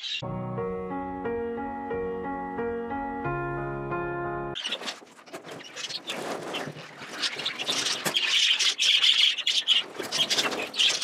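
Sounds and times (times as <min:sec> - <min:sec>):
budgerigars chattering and squawking: 0:04.6 - 0:11.0.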